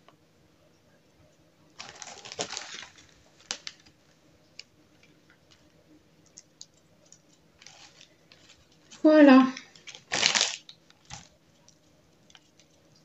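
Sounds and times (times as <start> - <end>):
plastic bag rustling: 1.8 - 4.2, 7.6 - 11.3.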